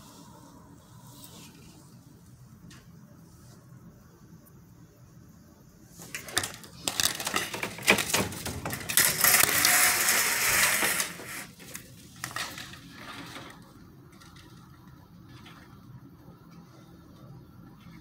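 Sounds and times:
scraping rush: 8.6s - 13.6s.

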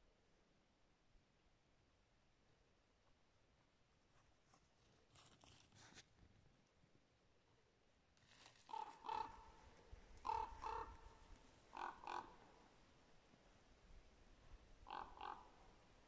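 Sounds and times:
crow cawing: 8.7s - 9.6s, 10.2s - 12.6s, 14.9s - 15.7s.

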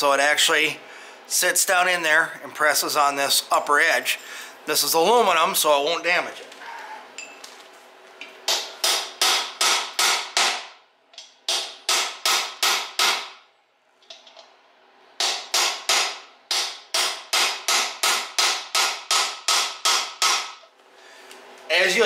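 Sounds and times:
hammer striking metal driver: 8.5s - 13.4s, 15.2s - 20.6s.

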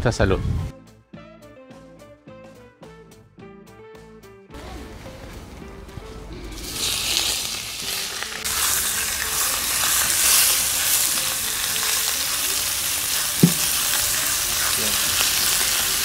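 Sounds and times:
meat searing: 6.5s - 16.0s
oil sizzling on hot steel: 6.5s - 16.0s
short knock: 13.4s - 13.7s.

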